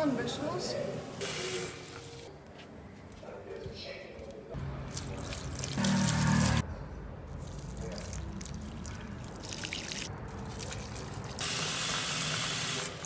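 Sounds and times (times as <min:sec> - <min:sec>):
water trickling and splashing: 0:04.6 - 0:06.6, 0:07.3 - 0:13.0.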